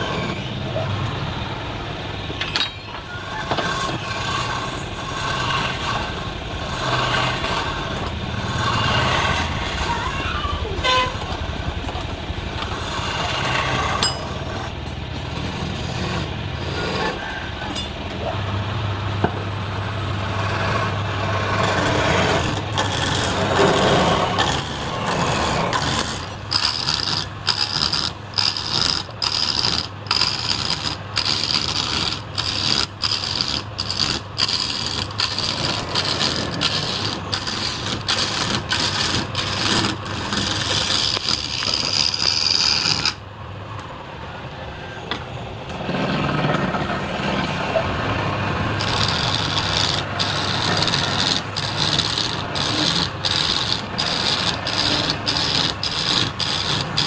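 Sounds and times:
chisel scraping spinning wood: 3.0 - 17.8, 19.2 - 43.3, 48.4 - 57.0
wood lathe humming: 3.2 - 10.0, 11.9 - 17.2, 19.5 - 43.2, 48.4 - 57.0.

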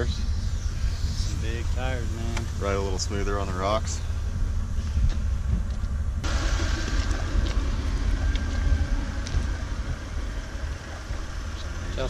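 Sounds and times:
low rumble: 0.0 - 12.0
air hissing out of tire: 6.3 - 9.6.

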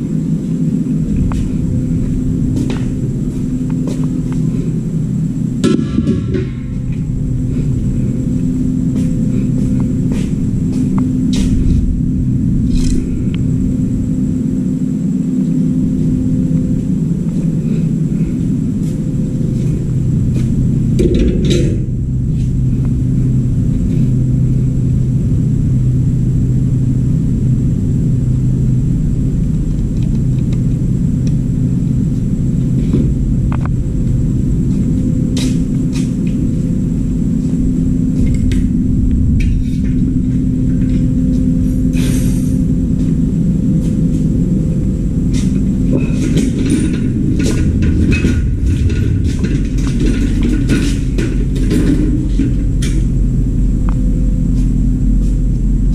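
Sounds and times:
machine hum: 0.0 - 55.9
knocks and clatters: 45.3 - 53.2.

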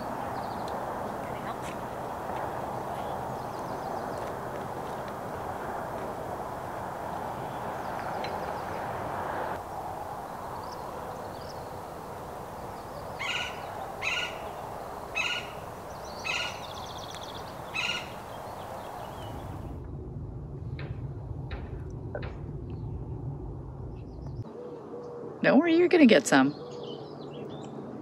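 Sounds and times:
steady rushing background: 0.0 - 24.5
faint high bird trill: 12.6 - 19.5.

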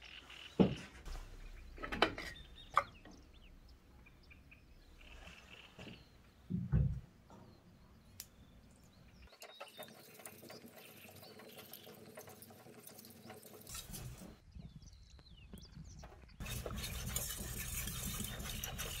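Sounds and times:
blade scraping on whetstone: 16.4 - 19.0.

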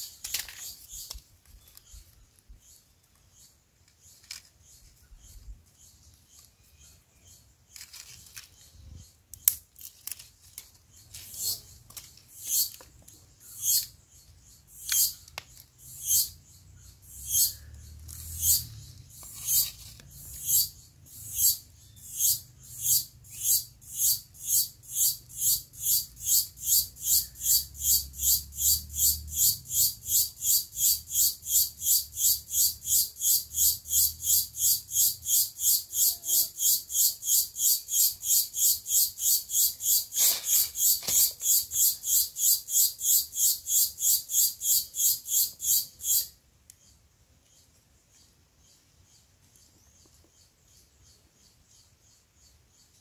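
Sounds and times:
soft clicks of sticks: 9.3 - 13.3, 14.8 - 15.7, 46.6 - 47.9
insect calling in buzzy pulses: 15.8 - 46.4.

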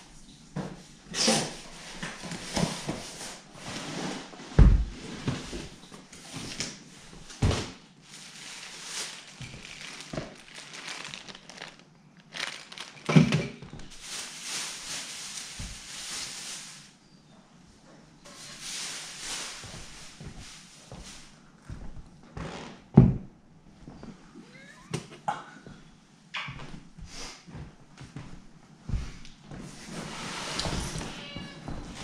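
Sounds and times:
packaging rustling and crinkling: 6.3 - 16.9, 18.3 - 21.3.

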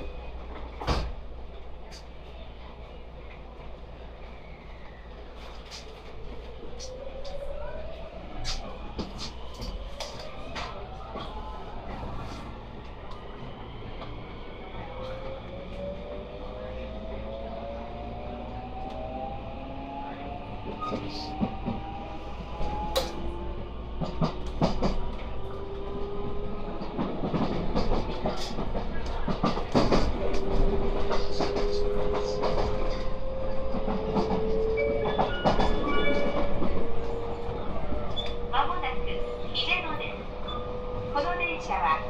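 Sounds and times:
train running noise: 0.0 - 42.0.

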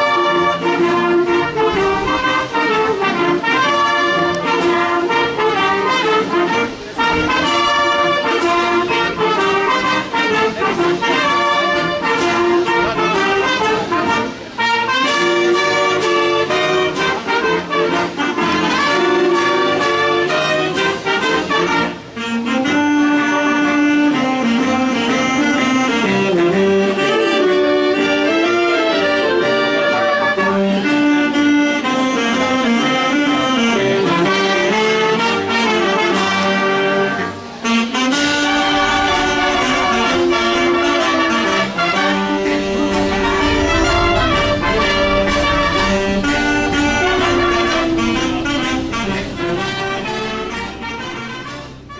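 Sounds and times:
wind band playing jazz: 0.0 - 51.9
deep bass: 38.4 - 51.6.

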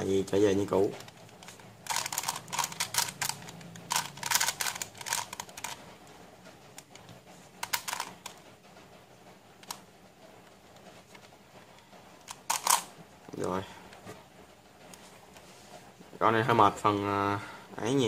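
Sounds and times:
plastic puzzle clicking: 1.0 - 5.8, 6.8 - 8.4, 12.2 - 12.9.

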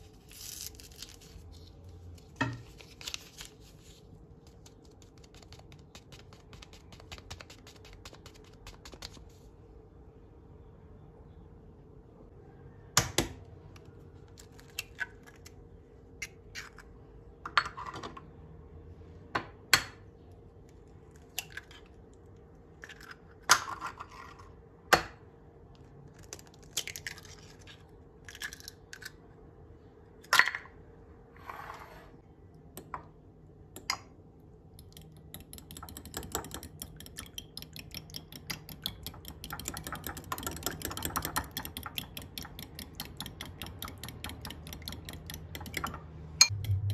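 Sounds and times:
eggs cracking on a glass bowl: 34.8 - 46.9
fork beating eggs in glass bowl: 34.8 - 46.9.

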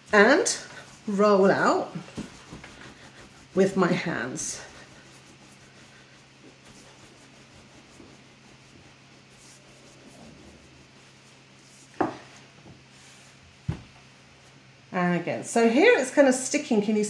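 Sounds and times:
palms rubbing on dough: 0.0 - 13.5.

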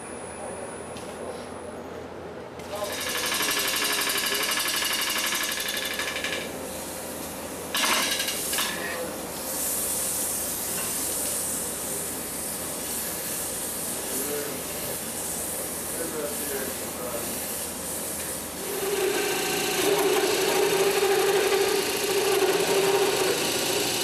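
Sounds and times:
tool scraping wood: 18.6 - 24.0
wood lathe tool cutting: 18.6 - 24.0.

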